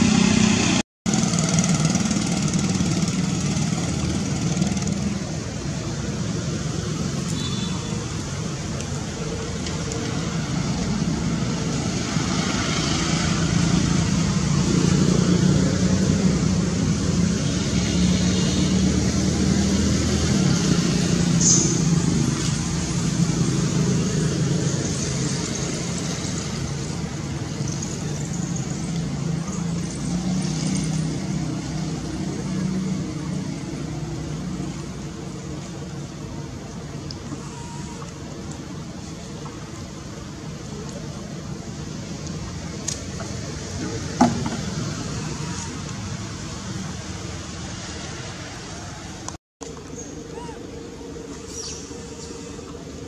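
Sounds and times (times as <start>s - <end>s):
vehicle engine running: 0.0s - 6.3s.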